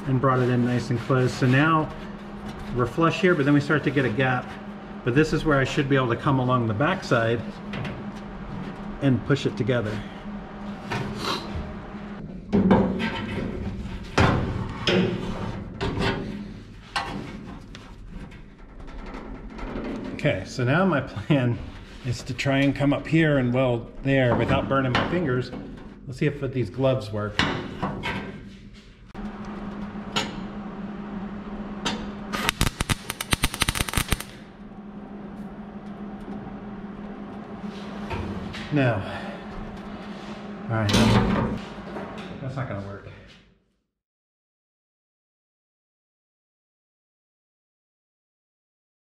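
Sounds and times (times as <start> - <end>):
metal rubbing and scraping: 0.0 - 9.9
steady low hum: 0.0 - 42.4
arc welding crackle: 32.3 - 34.4.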